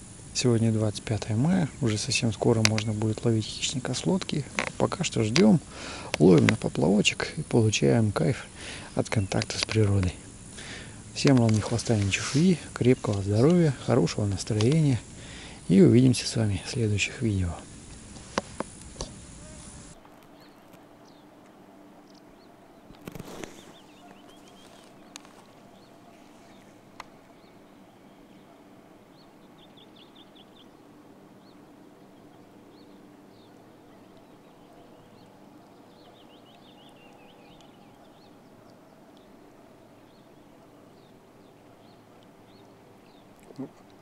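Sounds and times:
birds trilling: 0.0s - 18.0s, 19.0s - 44.0s.

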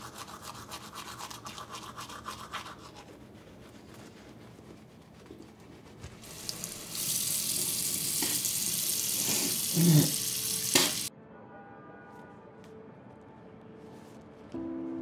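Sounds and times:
toothbrush scrubbing: 0.0s - 11.1s
tap running into a sink: 8.0s - 11.1s.

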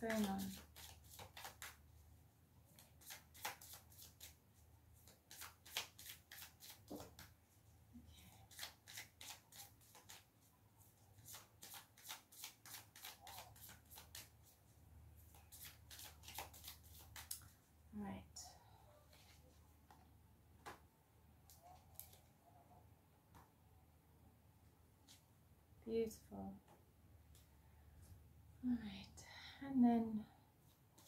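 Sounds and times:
cards shuffled by hand: 0.0s - 1.8s, 2.8s - 4.4s, 5.0s - 7.4s, 8.4s - 10.3s, 11.2s - 14.6s, 15.3s - 17.6s, 21.5s - 22.3s.

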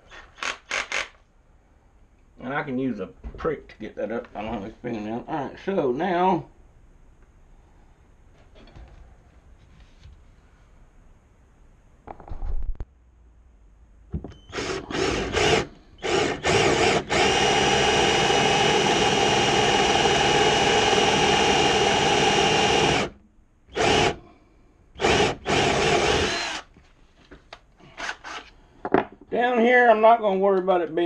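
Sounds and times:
electric drill boring wood: 14.5s - 24.2s, 25.0s - 26.7s, 28.0s - 28.5s.

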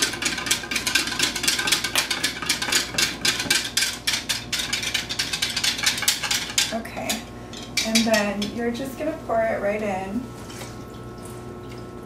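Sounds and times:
whisk clinking against cup: 0.0s - 8.6s.

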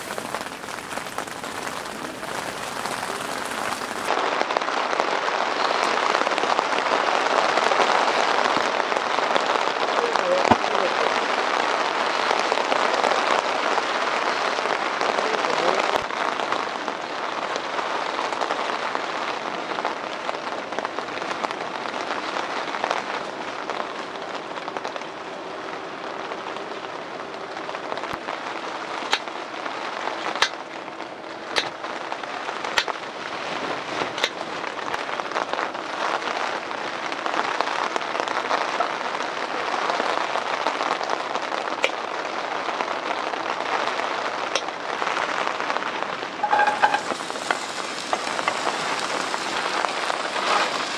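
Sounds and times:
steady rushing hiss: 0.0s - 4.1s, 46.6s - 50.9s.

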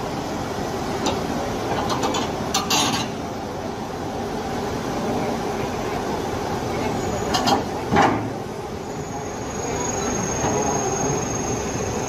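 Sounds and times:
heavy diesel machinery running: 0.0s - 12.0s
metallic clanks and rattles: 1.0s - 3.2s.

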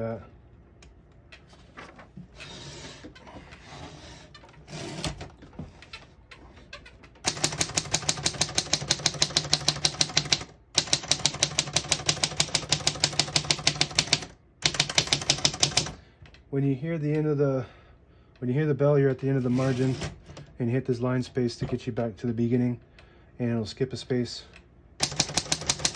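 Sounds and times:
typewriter typing: 7.2s - 16.0s, 25.0s - 25.9s.

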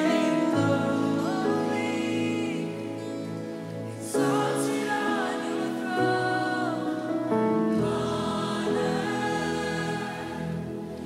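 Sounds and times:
woman singing: 0.0s - 3.1s, 4.1s - 10.8s
worship band music: 4.0s - 11.0s.

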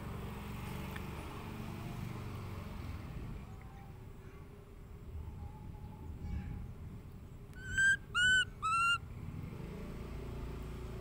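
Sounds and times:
baby monkey high calls: 7.6s - 9.0s.

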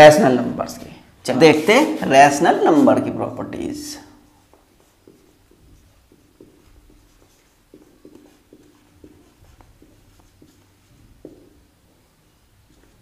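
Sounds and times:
marker writing on whiteboard: 4.3s - 13.0s.

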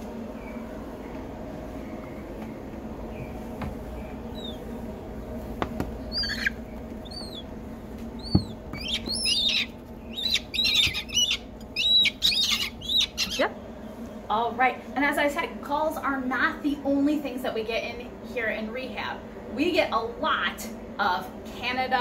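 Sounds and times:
gull chicks peeping: 3.0s - 13.8s.

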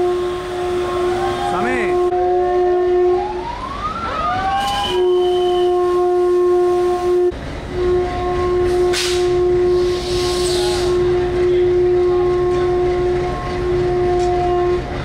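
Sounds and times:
rising and falling horn tone: 0.0s - 3.5s
train horn blasts: 0.0s - 3.5s, 4.6s - 15.0s.

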